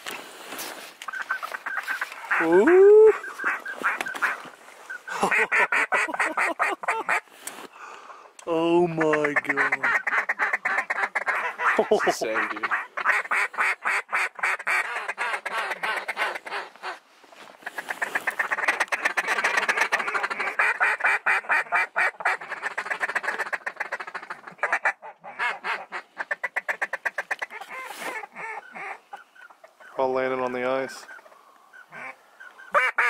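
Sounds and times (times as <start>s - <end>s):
duck quacking: 1.1s - 7.2s, 8.9s - 17.0s, 17.6s - 30.1s, 30.9s - 33.0s.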